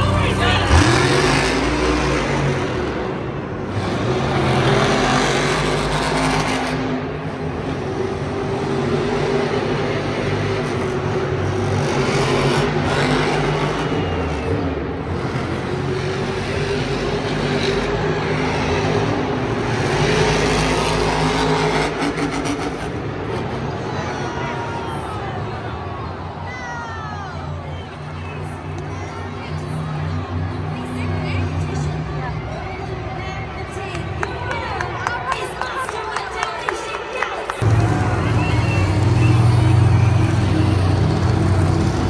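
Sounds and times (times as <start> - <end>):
truck engine revving: 0.0 - 24.1, 37.2 - 42.0.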